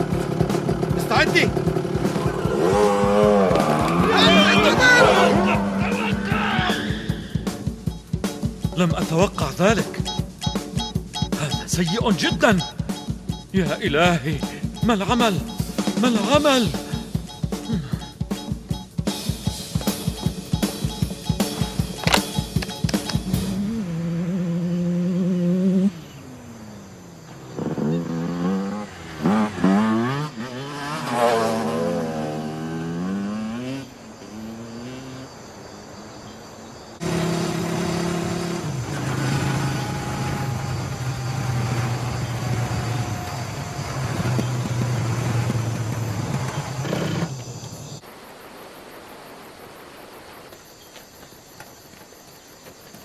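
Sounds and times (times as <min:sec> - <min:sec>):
motorcycle engine revving: 0:00.0 - 0:07.9, 0:21.3 - 0:35.3, 0:37.0 - 0:48.0.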